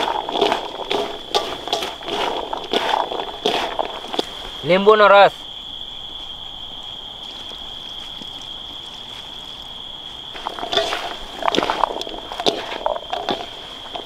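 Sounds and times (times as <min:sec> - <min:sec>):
hands mixing food in a steel basin: 0:00.0 - 0:05.2, 0:10.4 - 0:14.0.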